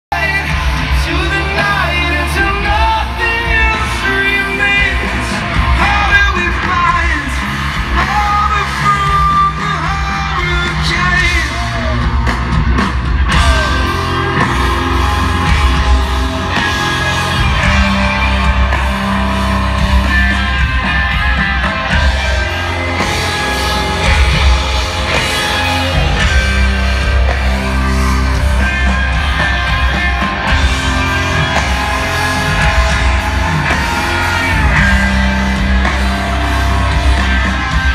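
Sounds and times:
person singing: 0.1 - 12.0
distorted electric guitars: 0.1 - 37.9
drums: 0.1 - 37.9
heavy bass: 0.1 - 37.9.

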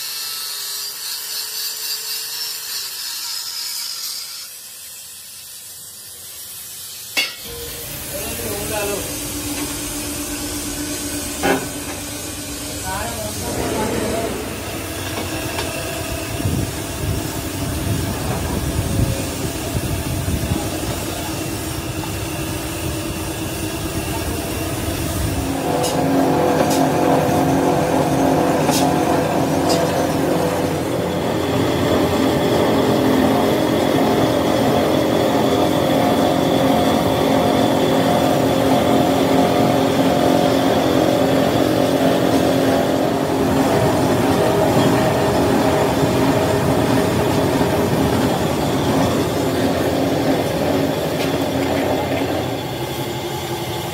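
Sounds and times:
roll-forming machine grinding: 7.5 - 23.4, 25.5 - 52.5.

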